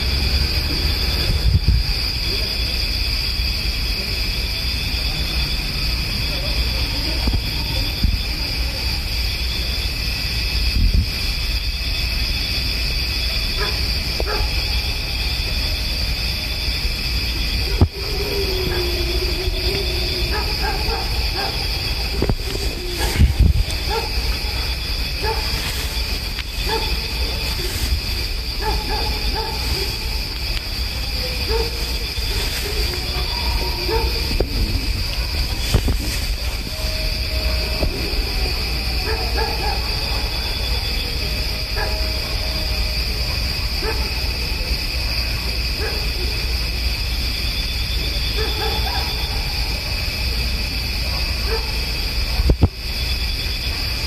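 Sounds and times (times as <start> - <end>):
high-pitched drone: 0.0 - 45.6
distant animal wailing cries: 13.1 - 44.5
distant dog barking: 13.4 - 15.1, 17.4 - 42.9, 43.7 - 44.7, 45.7 - 46.5, 48.3 - 49.9, 51.0 - 52.0.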